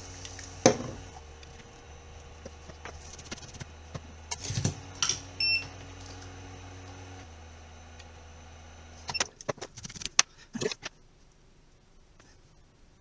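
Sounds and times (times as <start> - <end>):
steady low hum: 0.0 - 13.0
short electronic beep: 5.4 - 5.7.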